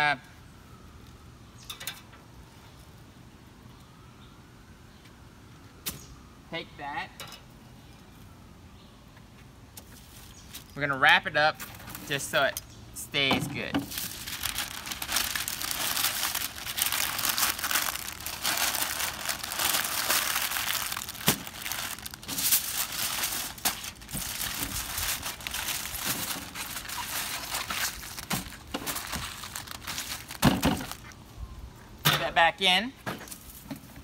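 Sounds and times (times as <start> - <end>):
aluminium foil crumpling: 13.9 - 31.2
paper crinkling: 13.9 - 31.2.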